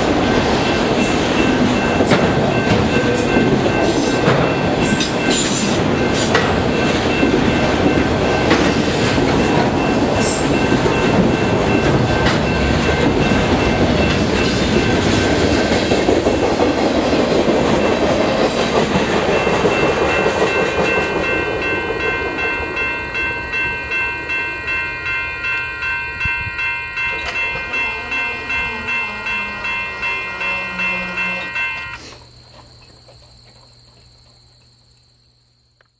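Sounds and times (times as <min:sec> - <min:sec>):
freight train wheels clattering: 0:00.0 - 0:33.3
faint crickets: 0:17.0 - 0:35.9.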